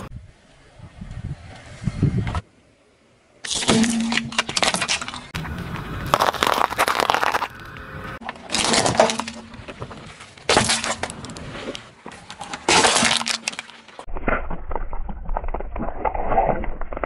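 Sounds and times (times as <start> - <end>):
tyre crushing plastic and metal: 3.5 - 7.6, 8.2 - 15.7
low rumble with small crackles: 14.0 - 17.0.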